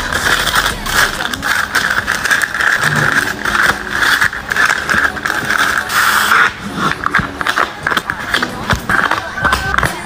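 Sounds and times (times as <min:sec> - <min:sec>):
paper bag crinkling: 0:00.0 - 0:06.3.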